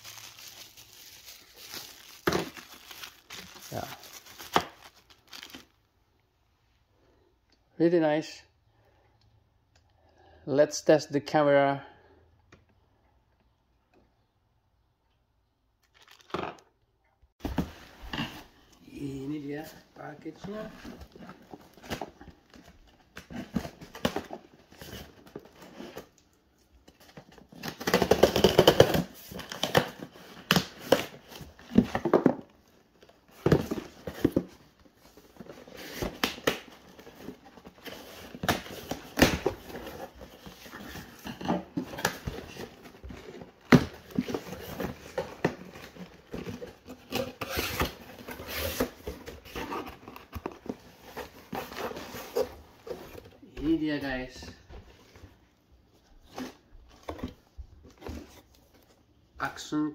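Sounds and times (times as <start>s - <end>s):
tape tearing: 35.7s - 53.0s.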